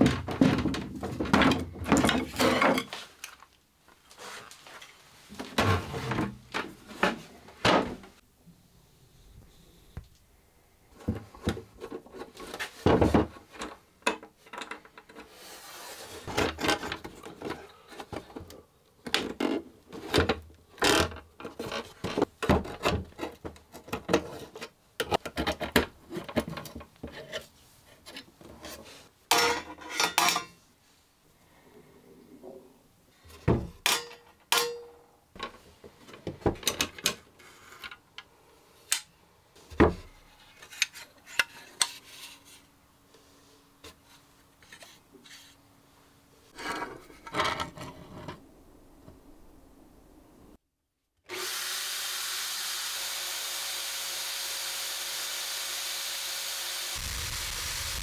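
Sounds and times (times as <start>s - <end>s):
metal plate scraping on wood: 46.5s - 48.4s.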